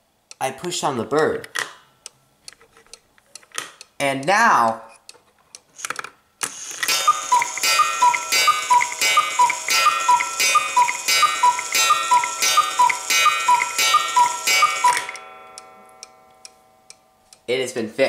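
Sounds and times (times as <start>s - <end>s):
cuckoo clock calling: 6.5s - 16.6s.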